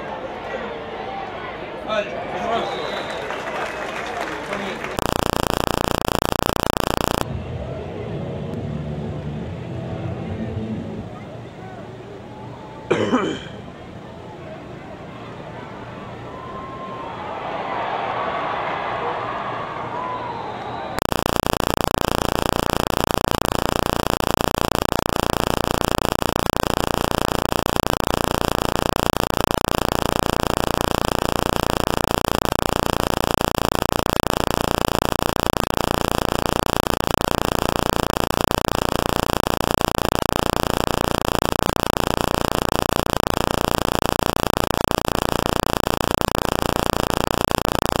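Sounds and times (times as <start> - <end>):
loud static hiss: 4.8 - 7.3, 21.0 - 48.0.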